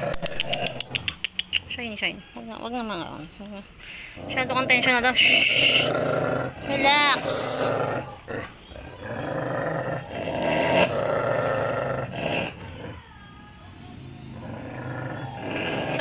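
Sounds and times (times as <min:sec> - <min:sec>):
dog growling: 0:04.0 - 0:13.1, 0:14.2 - 0:16.0.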